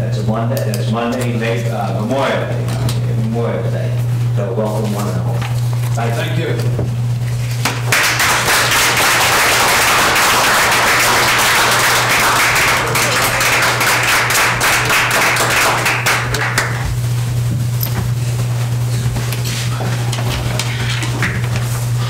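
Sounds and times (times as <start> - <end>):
steady low hum: 0.0 - 22.0
crowd applauding: 7.6 - 16.9.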